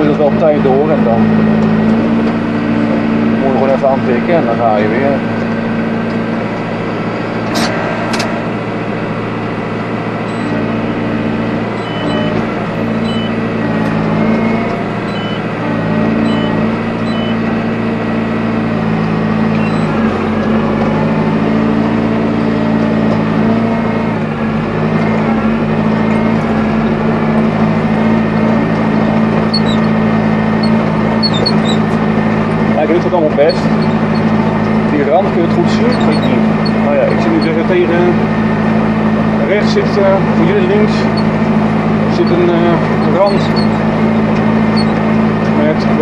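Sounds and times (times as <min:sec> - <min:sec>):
tractor engine running: 0:00.0 - 0:46.0
short high beeps: 0:10.3 - 0:10.6, 0:11.8 - 0:12.4, 0:13.0 - 0:13.4, 0:14.4 - 0:15.4, 0:16.2 - 0:17.4, 0:19.6 - 0:20.0.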